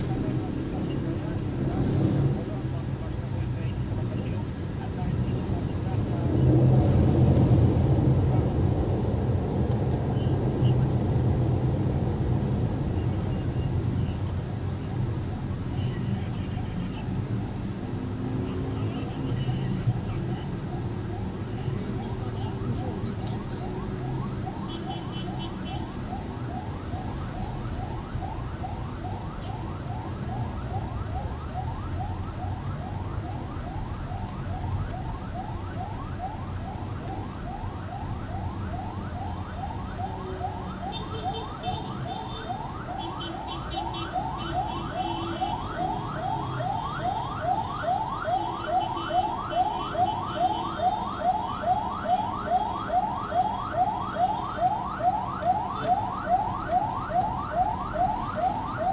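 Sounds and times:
low traffic rumble: 0.0 - 58.9
siren yelping: 18.2 - 58.9.

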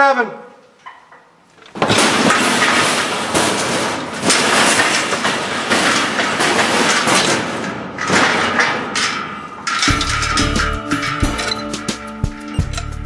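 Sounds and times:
steel pipe panels clanking: 0.8 - 13.0
guitar music: 10.0 - 13.0.

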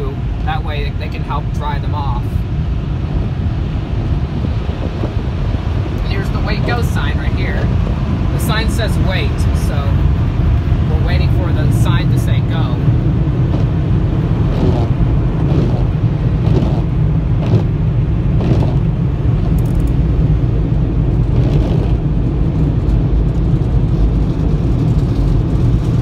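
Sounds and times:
car wash dryer blowers rumbling: 0.0 - 26.0
windshield wipers swishing: 10.9 - 26.0.

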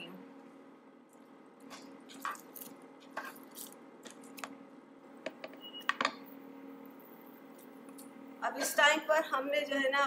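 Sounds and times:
steady low hum: 0.0 - 10.0
spoon scraping in a pan: 3.1 - 3.7.

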